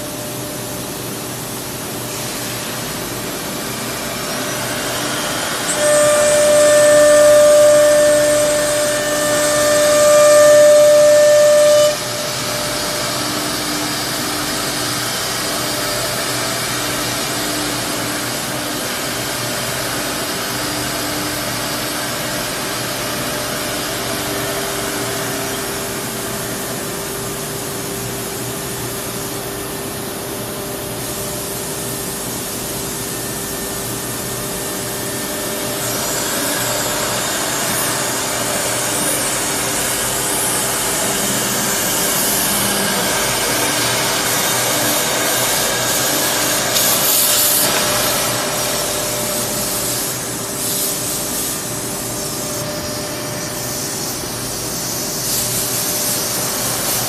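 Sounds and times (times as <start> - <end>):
router machine hissing: 3.4 - 18.8, 34.7 - 57.0.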